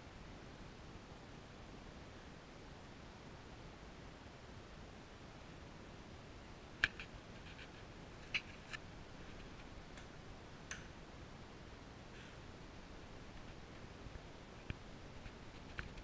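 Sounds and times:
room hiss: 0.0 - 16.0
light sharp clicks and taps: 6.8 - 8.8, 9.4 - 10.9.

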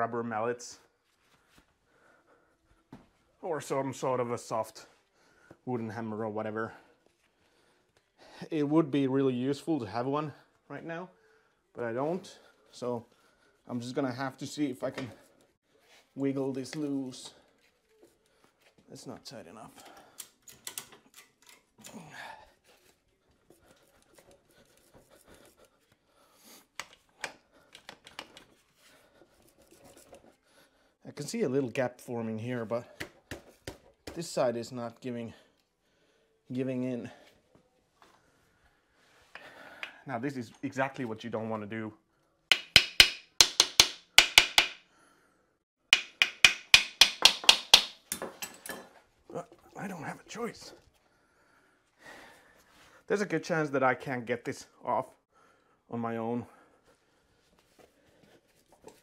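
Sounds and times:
soft breaths: 0.8 - 3.4, 4.8 - 5.7, 6.6 - 8.5, 10.3 - 13.8, 35.3 - 40.1, 50.3 - 53.1.

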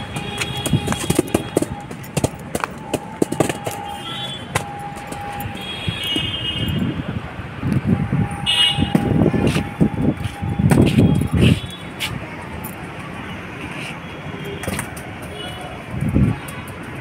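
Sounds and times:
stick hitting plastic ball: 0.0 - 5.4
dull thumps: 0.0 - 5.5.

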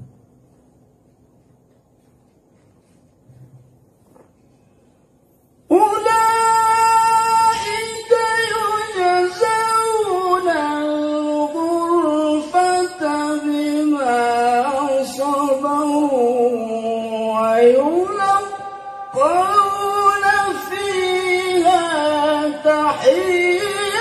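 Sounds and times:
man reciting melodically: 5.7 - 24.0.

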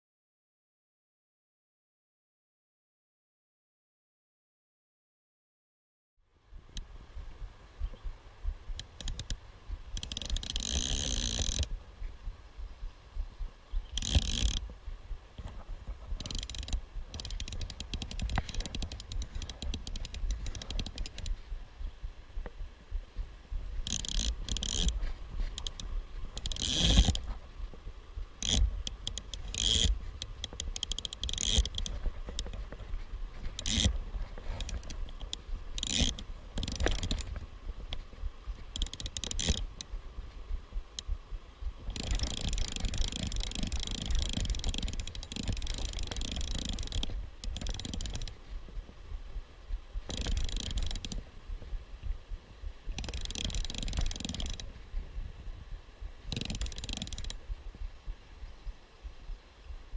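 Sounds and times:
fly reel ratchet clicking: 8.8 - 9.4, 10.0 - 11.7, 13.9 - 14.7, 16.2 - 21.4, 23.8 - 27.2, 28.4 - 32.6, 33.6 - 33.9, 34.5 - 37.3, 38.7 - 39.9, 41.9 - 48.4, 50.1 - 51.2, 53.0 - 54.7, 56.3 - 57.4.

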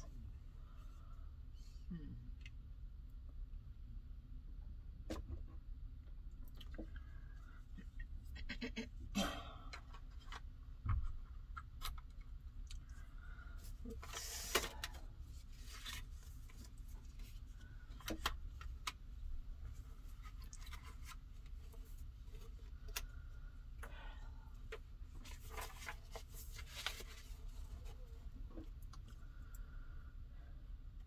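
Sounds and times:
cards and paper rustling: 13.8 - 19.0, 19.7 - 23.1, 25.2 - 28.6.

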